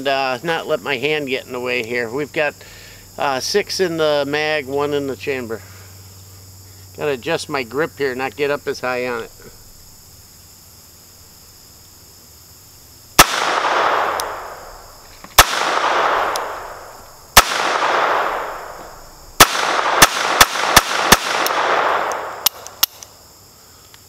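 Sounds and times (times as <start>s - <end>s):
pistol shots with echo: 13.2s - 14.8s, 15.4s - 22.9s.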